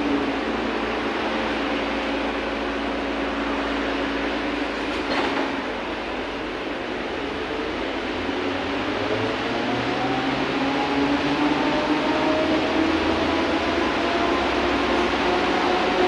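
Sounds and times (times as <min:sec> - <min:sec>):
trolleybus running and road noise: 0:00.0 - 0:16.0.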